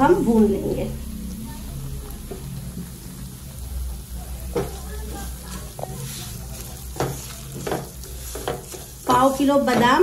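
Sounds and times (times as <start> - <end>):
semolina sizzling in ghee: 0.0 - 10.0
spatula scraping pan: 4.6 - 10.0.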